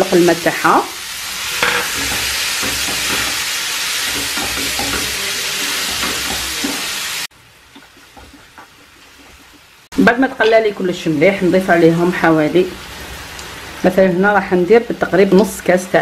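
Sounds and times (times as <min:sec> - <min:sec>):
food sizzling in a frying pan: 0:00.0 - 0:16.0
wooden spoon scraping a pan: 0:01.4 - 0:07.2.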